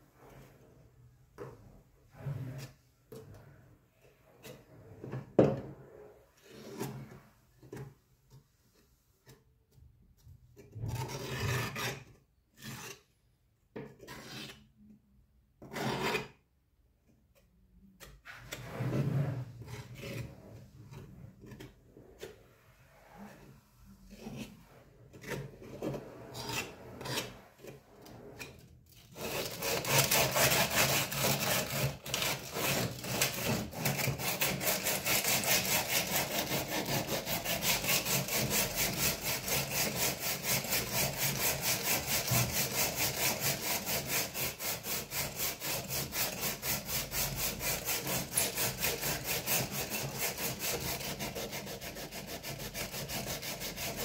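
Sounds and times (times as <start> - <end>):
putty knife scraping: 6.4 - 7.9, 10.6 - 13.2, 13.8 - 14.8, 15.6 - 16.4, 17.4 - 22.5, 24.1 - 54.0
sanding metal by hand: 29.2 - 54.0.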